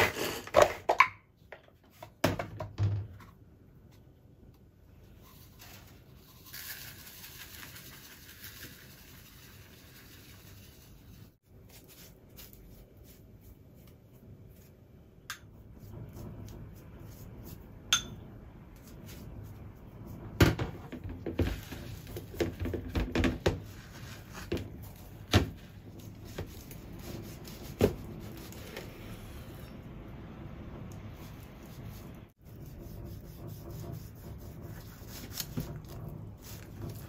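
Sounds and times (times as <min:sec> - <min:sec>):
kitchen counter knocks and taps: 0:22.2 - 0:23.6.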